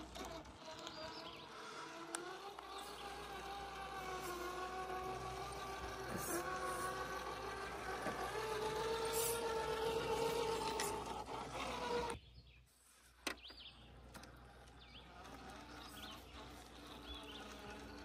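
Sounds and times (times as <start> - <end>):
toy car motor whining: 0.0 - 18.0.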